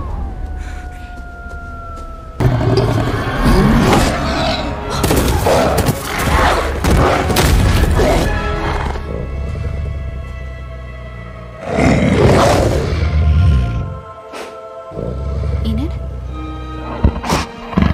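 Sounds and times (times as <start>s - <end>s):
dramatic orchestral film music: 2.4s - 17.9s.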